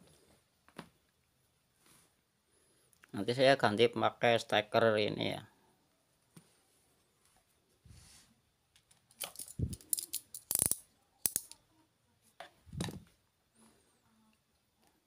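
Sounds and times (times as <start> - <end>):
hand tools clicking and knocking: 9.2 - 11.6
power cord being handled: 12.7 - 13.1.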